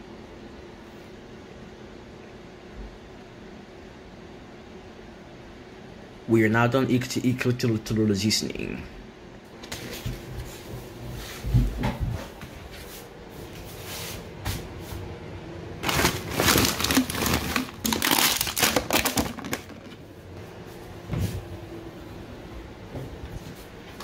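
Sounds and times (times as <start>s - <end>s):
paper and plastic crinkling: 15.8s - 20.0s.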